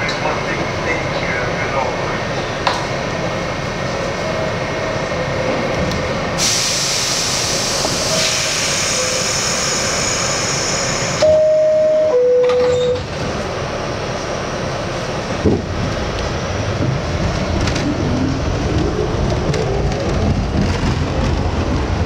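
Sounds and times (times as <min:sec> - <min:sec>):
two-tone door chime: 0:11.2 - 0:13.1.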